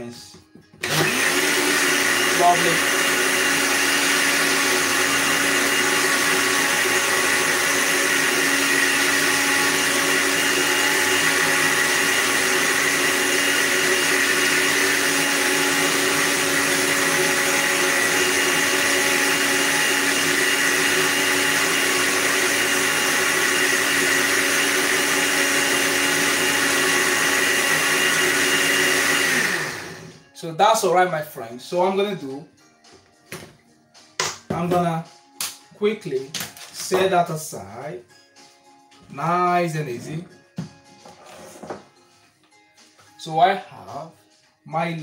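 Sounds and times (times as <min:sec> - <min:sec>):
blender running: 0:00.8 - 0:30.2.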